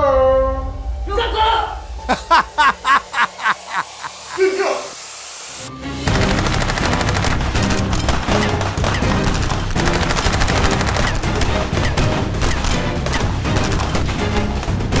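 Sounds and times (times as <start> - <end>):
background music with beat: 2.1 - 3.8, 5.7 - 15.0
rapid-fire gunshots: 6.1 - 14.2.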